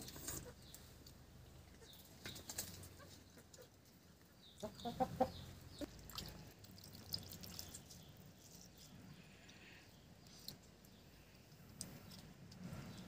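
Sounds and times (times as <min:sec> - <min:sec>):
hen clucking: 0:04.5 - 0:05.9.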